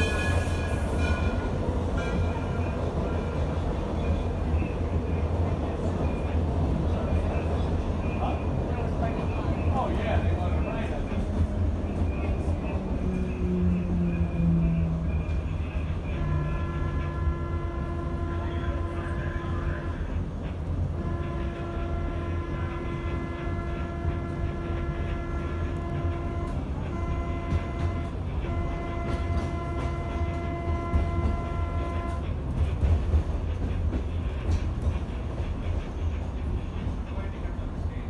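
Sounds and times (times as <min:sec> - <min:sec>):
train horn blasts: 0:00.0 - 0:03.4, 0:13.4 - 0:20.2, 0:20.9 - 0:32.3
rail car rumble: 0:00.0 - 0:38.0.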